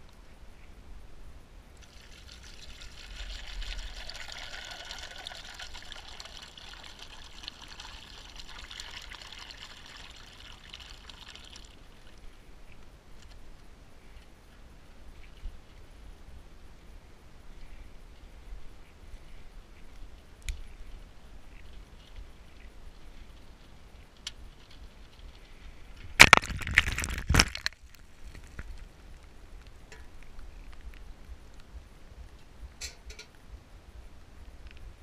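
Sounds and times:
water pouring over ice cubes: 1.8s - 12.1s.

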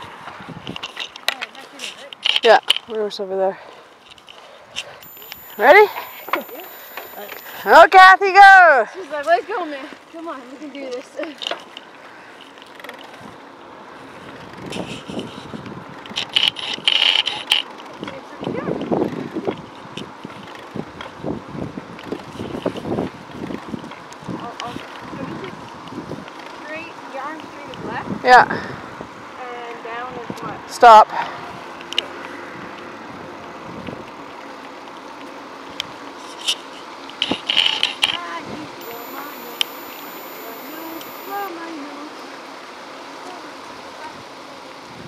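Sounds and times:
wind on microphone: 0.0s - 0.9s, 18.4s - 26.3s
tyres and wind rumble: 0.0s - 1.2s, 13.1s - 29.5s
bicycle clicking and rattling: 14.1s - 21.2s.

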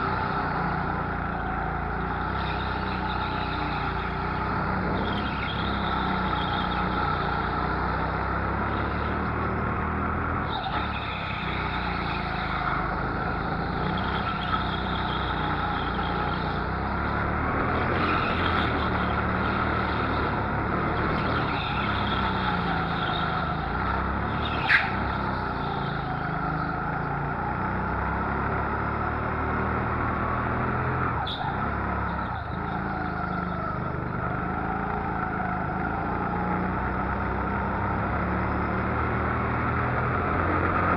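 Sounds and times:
go-kart motor: 0.0s - 40.9s.

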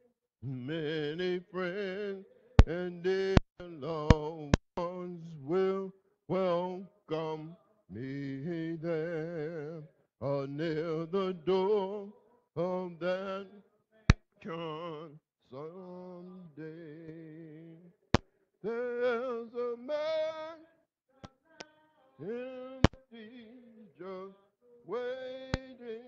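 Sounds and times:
man singing a hymn: 0.0s - 26.0s
sharp clicks: 22.8s - 23.0s.

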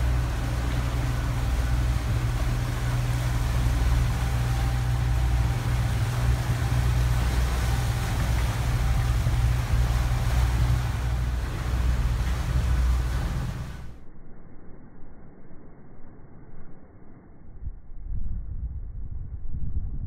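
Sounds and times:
boat engine droning: 0.0s - 14.0s
water rushing in wake: 0.0s - 14.0s.

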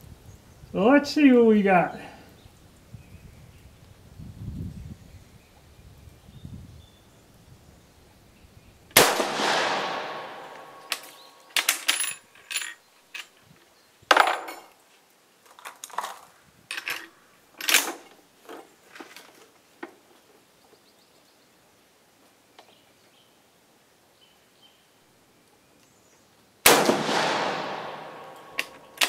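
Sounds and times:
rifle shot: 9.0s - 11.5s, 26.6s - 29.0s
rifle bolt clicking: 26.7s - 29.0s.

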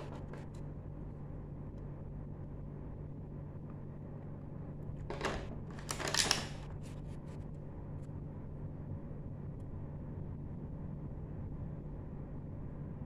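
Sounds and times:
plastic pieces clicking: 5.1s - 6.6s.

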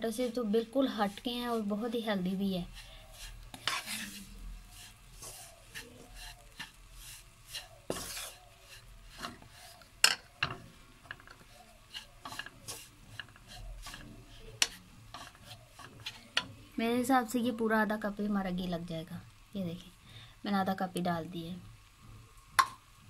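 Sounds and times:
wooden spoon scraping a pan: 0.0s - 16.7s
spoon knocking on pan: 22.6s - 22.8s.

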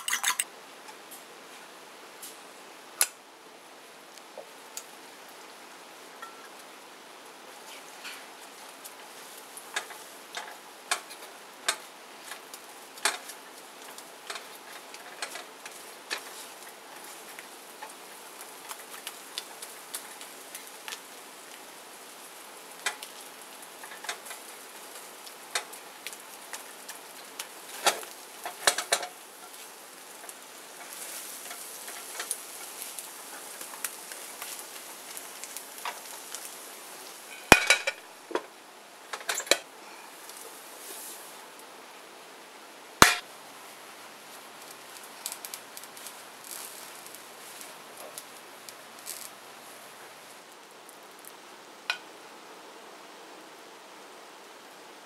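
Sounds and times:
ceramic plate clattering on pan: 0.0s - 0.4s, 37.4s - 38.0s, 43.0s - 43.2s
faint sizzle: 0.0s - 55.0s
spatula stirring and tapping pan: 6.2s - 6.6s, 9.7s - 21.0s, 22.8s - 36.6s, 37.3s - 38.4s, 43.0s - 43.2s.

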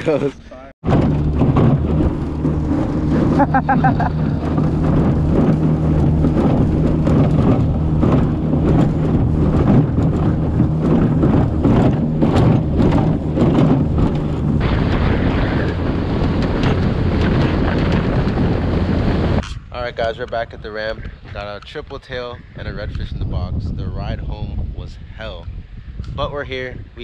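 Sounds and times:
wind buffeting microphone: 0.0s - 27.0s
hull slapping through water: 0.8s - 19.5s
outboard motor droning: 0.8s - 23.1s.

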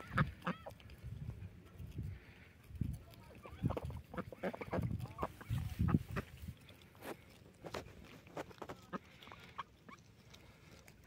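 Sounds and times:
ducks quacking: 0.0s - 1.0s, 3.3s - 7.2s, 8.7s - 10.7s
ducks pecking clicks: 0.0s - 11.0s.

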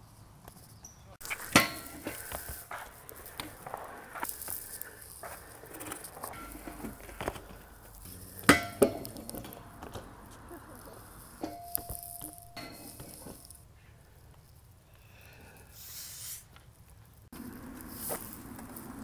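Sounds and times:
bike knocking on concrete: 1.2s - 13.6s.

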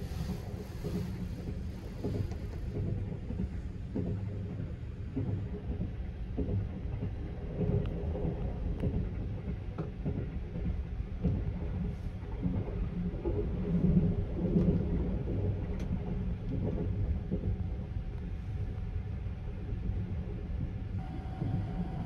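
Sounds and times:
train low rumble: 0.0s - 22.0s
faint clicks and rattles: 0.6s - 18.4s.

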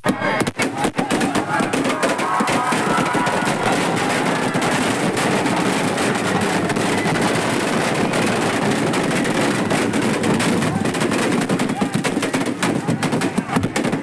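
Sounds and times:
firecrackers bangs and crackles: 0.0s - 14.0s.

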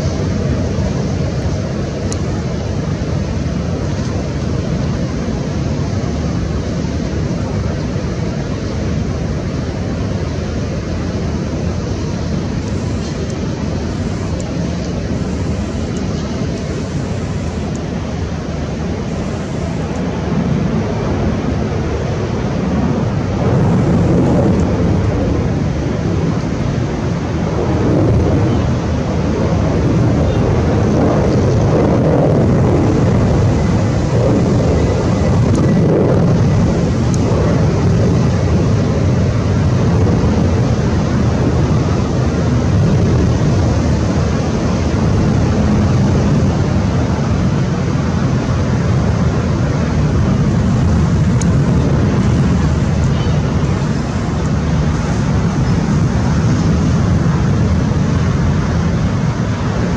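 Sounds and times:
distant jet engines rumbling: 0.0s - 59.9s.

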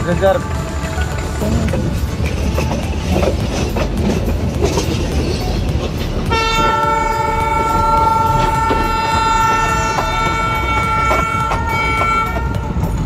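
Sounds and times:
train wheels rumbling on track: 0.0s - 13.0s
locomotive horn blast: 6.3s - 12.8s.

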